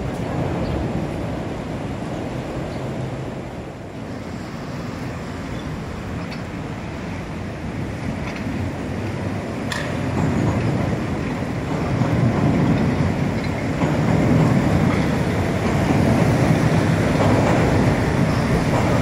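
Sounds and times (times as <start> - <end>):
train rumbling across steel bridge: 0.0 - 19.0.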